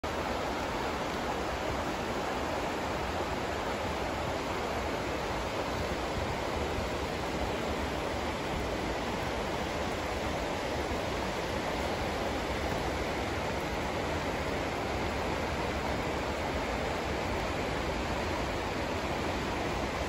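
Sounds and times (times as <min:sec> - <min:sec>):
river rapids rushing over rocks: 0:00.1 - 0:20.0.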